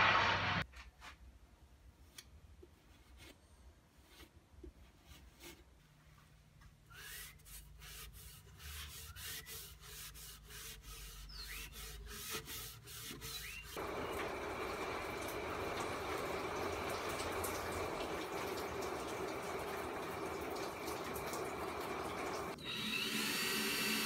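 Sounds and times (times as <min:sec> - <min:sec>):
cloth rag rubbing wood: 0:07.0 - 0:13.8.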